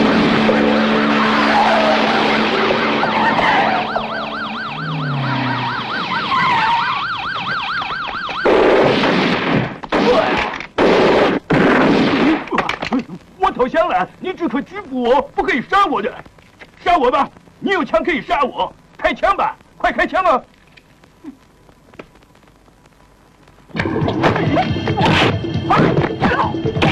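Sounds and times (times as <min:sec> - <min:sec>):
loud noisy bursts: 0:00.0 - 0:07.0
police sirens wailing: 0:00.0 - 0:08.8
fast warbling siren: 0:00.2 - 0:08.7.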